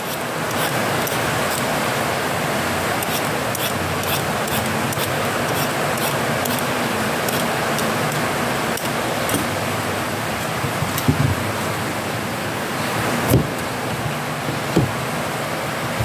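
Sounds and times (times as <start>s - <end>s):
hand peeler scraping: 0.0s - 1.8s, 3.0s - 8.9s
heavy rain pouring: 0.0s - 16.0s.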